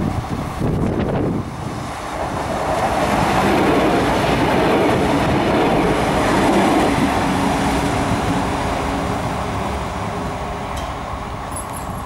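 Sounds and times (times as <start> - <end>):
diesel engines: 0.0 - 12.0
train wheels on rails: 0.0 - 12.0.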